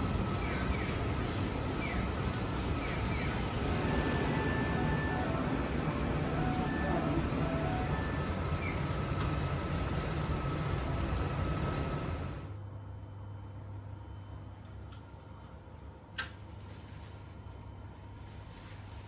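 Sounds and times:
traffic noise: 0:00.0 - 0:12.6.

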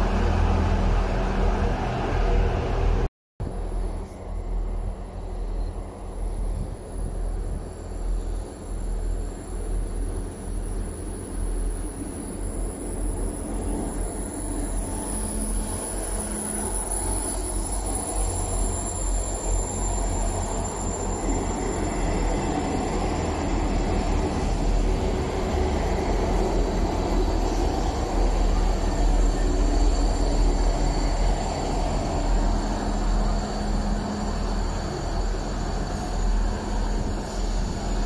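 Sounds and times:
diesel train engine rumble: 0:00.0 - 0:38.0
rail noise: 0:00.0 - 0:38.0.

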